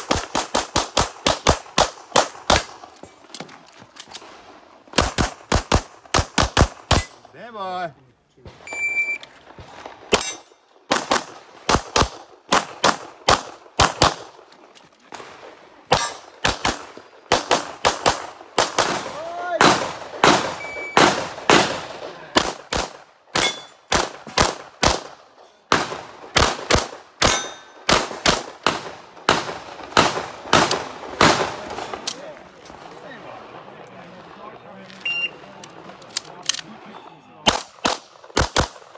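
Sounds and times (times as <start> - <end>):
pistol shots: 10.1 - 14.4, 15.9 - 32.0, 37.4 - 38.9.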